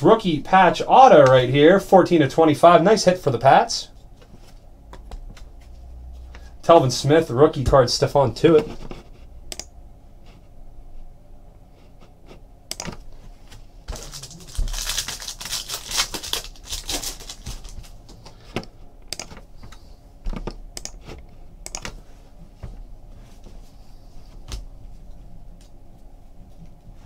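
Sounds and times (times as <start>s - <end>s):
wrapper crinkling: 13.9s - 18.1s.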